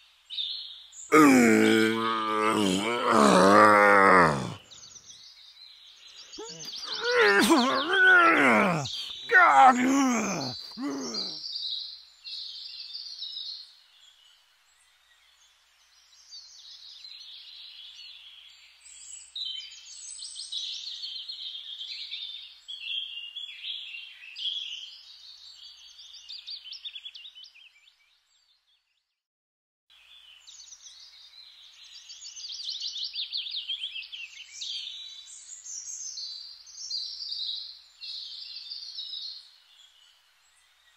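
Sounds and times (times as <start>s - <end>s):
birds chirping and trilling: 1.8s - 9.3s.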